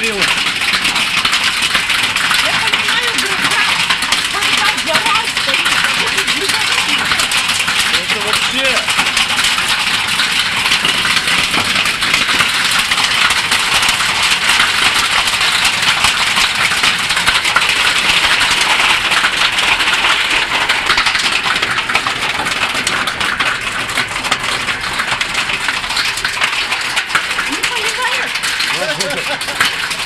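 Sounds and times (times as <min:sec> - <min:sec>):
hail and rain pelting down: 0:00.0 - 0:30.0.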